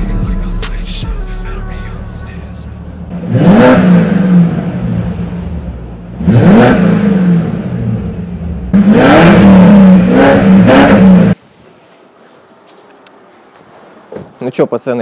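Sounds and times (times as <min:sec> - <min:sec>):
car engine revving: 0:00.1 - 0:11.4.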